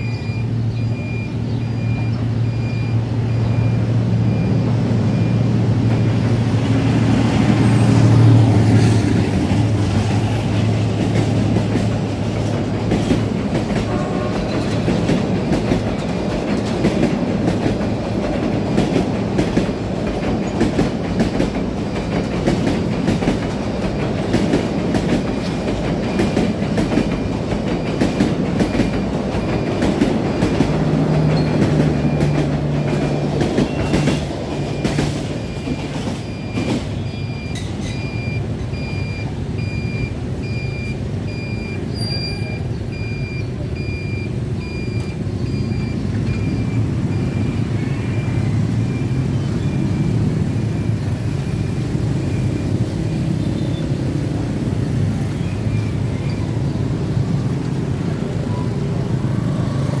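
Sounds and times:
crossing signal beeping: 0.0s - 6.3s, 13.2s - 17.7s, 25.2s - 60.0s
motorbike and van engines: 0.0s - 60.0s
train wheels clacking: 5.8s - 38.8s.

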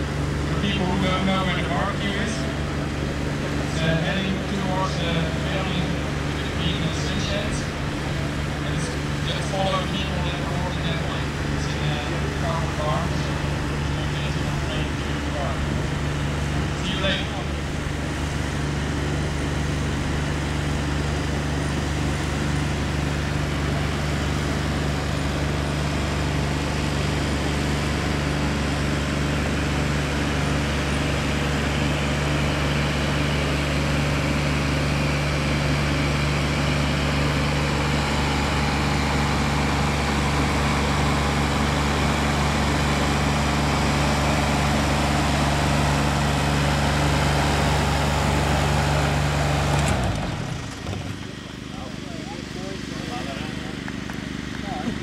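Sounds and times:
engine droning: 0.0s - 55.0s.

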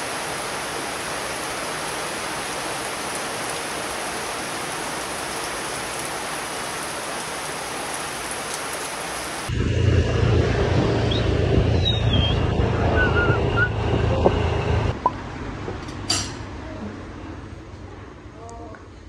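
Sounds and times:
heavy rain falling: 0.0s - 9.6s
road traffic engine hum: 9.4s - 19.0s.

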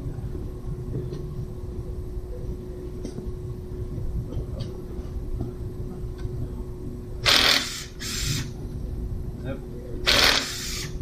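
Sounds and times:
cordless power tool driving bolts: 7.3s - 8.5s, 10.1s - 10.9s.

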